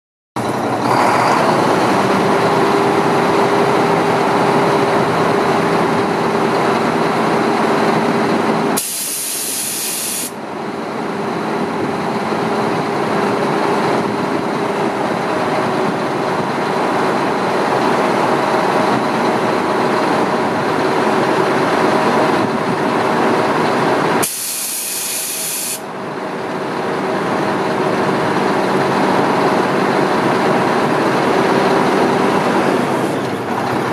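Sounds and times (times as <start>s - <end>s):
diesel truck engine running: 0.4s - 33.9s
loud air hisses: 8.8s - 10.4s, 24.2s - 25.9s.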